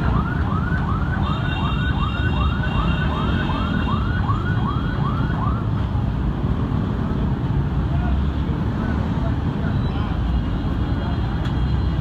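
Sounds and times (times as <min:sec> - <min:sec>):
vehicle siren yelping: 0:00.0 - 0:05.8
street traffic rumble: 0:00.0 - 0:12.0.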